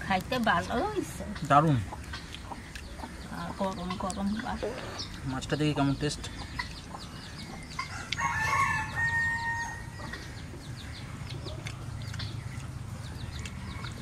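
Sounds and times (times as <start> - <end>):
rooster crowing: 7.8 - 10.2.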